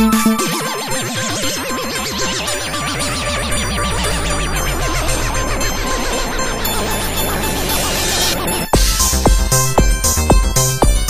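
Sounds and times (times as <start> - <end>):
synth hits falling in pitch: 0.0 - 0.8
kick drum: 8.8 - 11.0.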